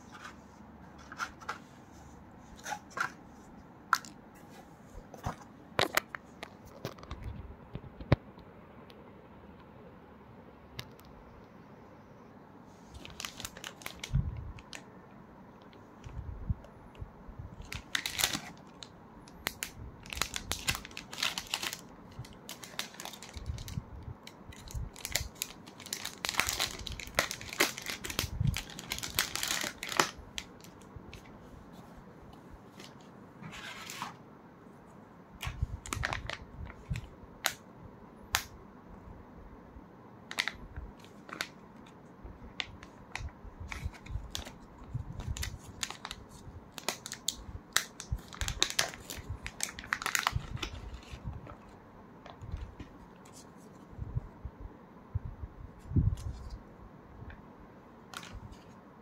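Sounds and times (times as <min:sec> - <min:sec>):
plastic packaging crinkling: 0:12.9 - 0:14.8, 0:17.6 - 0:31.3, 0:35.4 - 0:37.6, 0:40.3 - 0:42.0, 0:42.6 - 0:53.4, 0:58.1 - 0:58.7.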